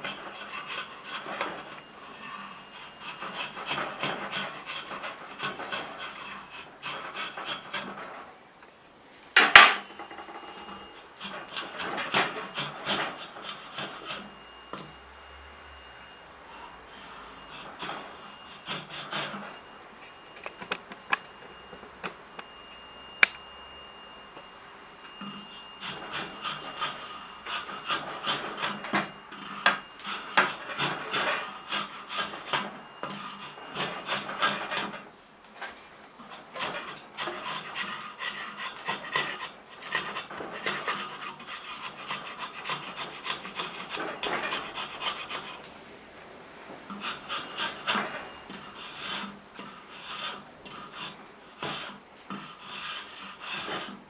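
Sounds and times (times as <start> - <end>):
wood rasp strokes: 0.0 - 8.3, 10.5 - 14.9, 16.5 - 19.6, 25.2 - 35.1, 35.7 - 45.7, 46.9 - 54.0.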